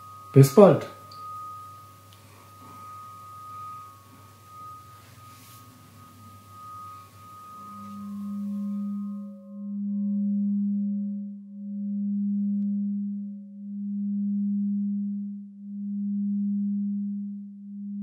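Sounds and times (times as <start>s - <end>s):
crystal rods ringing: 0.0s - 9.6s
higher pulsing tone: 0.0s - 18.0s
low pulsing tone: 0.0s - 18.0s.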